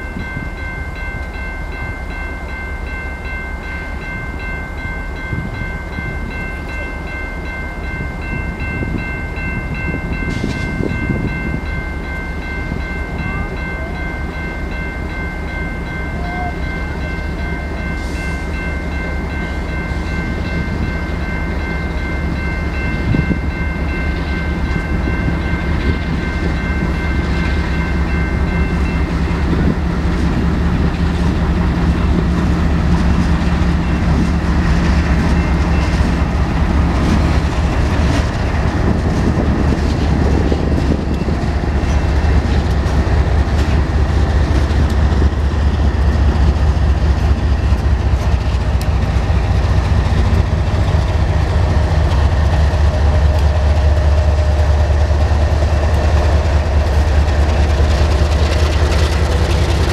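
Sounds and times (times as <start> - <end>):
crossing bell ringing: 0.0 - 59.9
diesel locomotives rumbling past: 0.0 - 59.9
train wheels clacking over rails: 17.3 - 59.9.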